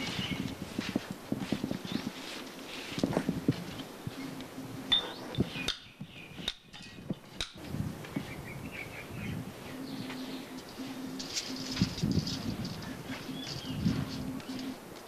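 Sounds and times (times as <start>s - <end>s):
bird chirps: 0.0s - 0.5s, 4.1s - 14.8s.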